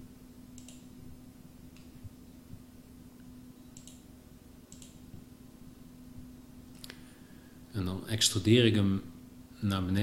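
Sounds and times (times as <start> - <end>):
faint steady hum: 0.0 - 10.0
computer mouse clicks: 0.5 - 0.9, 3.7 - 4.1, 4.7 - 5.1.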